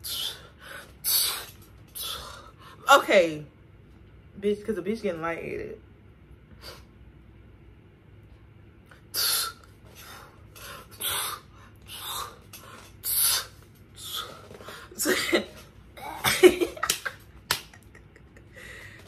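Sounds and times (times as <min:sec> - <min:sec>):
woman speaking: 0:02.8 - 0:03.5, 0:04.4 - 0:05.8
woman laughing breaths: 0:17.9 - 0:19.0
woman breathing hard: 0:18.5 - 0:19.0.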